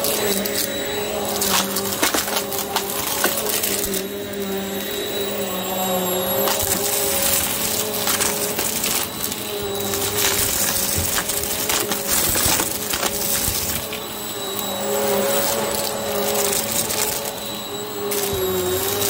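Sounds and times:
debris crunching and crackling: 0.0 - 19.0
vacuum cleaner running: 0.0 - 19.0.

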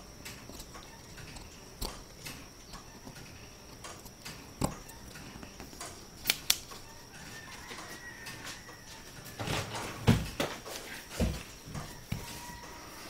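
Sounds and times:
faint high whine: 0.0 - 13.0
wooden pieces clicking on board: 0.2 - 8.7.

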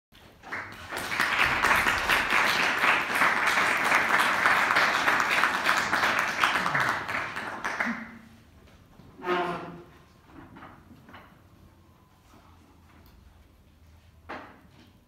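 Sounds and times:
audience applauding: 0.2 - 8.4.

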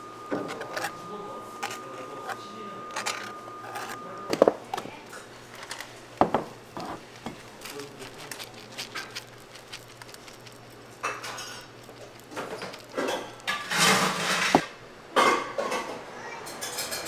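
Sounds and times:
utensils and dishes clinking: 10.9 - 17.0.

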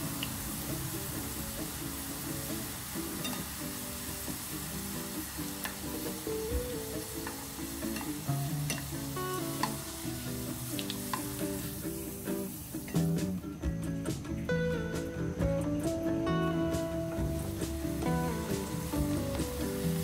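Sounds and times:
oil sizzling: 0.0 - 20.0.

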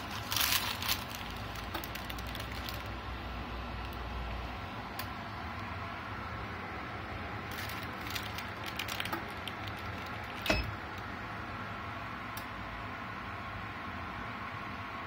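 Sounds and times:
steady low hum: 0.0 - 15.0
sharp metallic clunk: 10.4 - 10.8.

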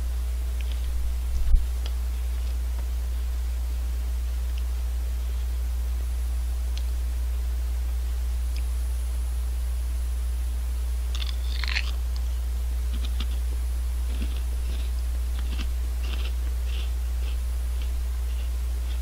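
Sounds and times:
steady low hum: 0.0 - 19.0
crunching crisp snacks: 11.1 - 12.3, 12.9 - 19.0.

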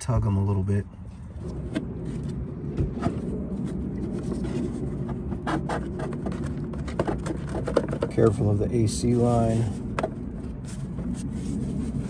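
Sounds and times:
low rumble: 0.0 - 12.0
plastic scraping and knocking: 1.4 - 12.0.

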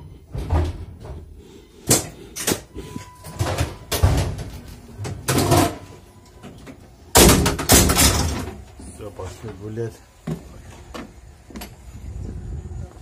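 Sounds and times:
doors banging: 0.0 - 8.9.

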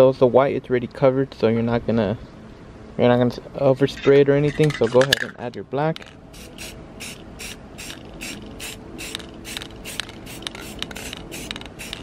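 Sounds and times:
spray paint hissing in bursts: 6.3 - 12.0.

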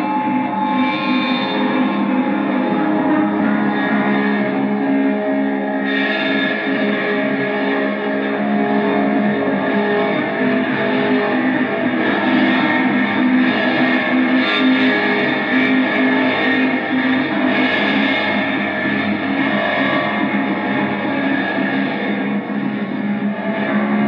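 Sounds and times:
distorted electric guitar drone: 0.0 - 24.0.

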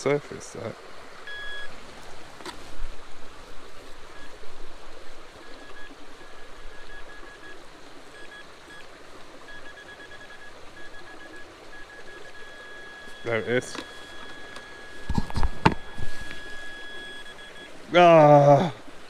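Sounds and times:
running water: 0.0 - 19.0
metal detector beeping: 1.3 - 1.7, 5.4 - 7.6, 9.5 - 17.7.

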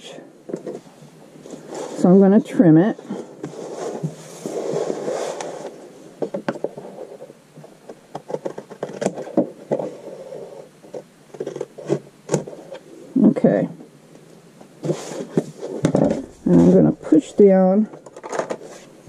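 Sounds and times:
paper rustling scrape: 3.1 - 5.8, 14.8 - 17.2.

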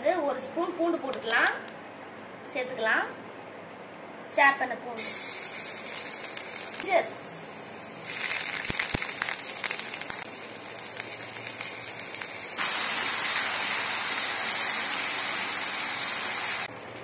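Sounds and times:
garlic sizzling in hot oil: 5.0 - 16.7
chilli paste frying in oil: 5.0 - 16.8.

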